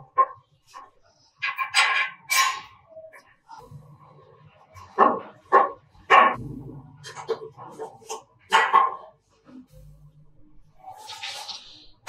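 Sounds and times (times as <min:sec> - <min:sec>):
dog barking: 0:04.9 - 0:06.4, 0:08.5 - 0:09.2.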